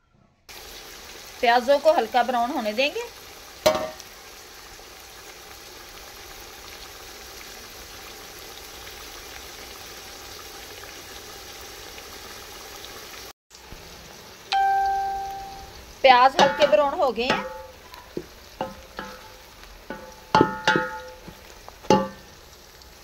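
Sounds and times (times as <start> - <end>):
onions sizzling in a pot: 0.5 - 23.0
ringing tone: 14.5 - 15.8.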